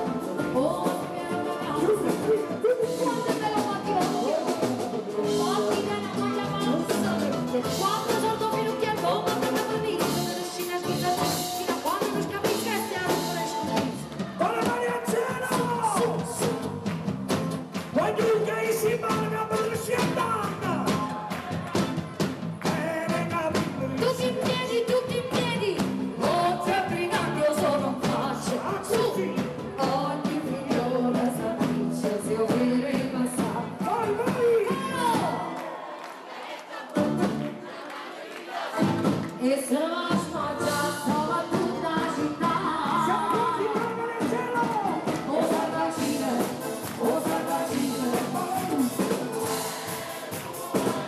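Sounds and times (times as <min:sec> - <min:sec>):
woman singing: 0:00.0 - 0:16.8, 0:23.8 - 0:35.5, 0:39.1 - 0:51.0
drum kit beat: 0:00.0 - 0:35.6, 0:38.7 - 0:51.0
live band playing: 0:00.0 - 0:35.7, 0:36.7 - 0:37.8, 0:38.5 - 0:51.0.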